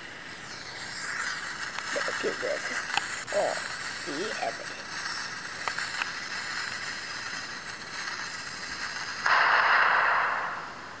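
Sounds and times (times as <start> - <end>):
steady hiss: 0.0 - 11.0
explosion rushing noise: 9.2 - 11.0.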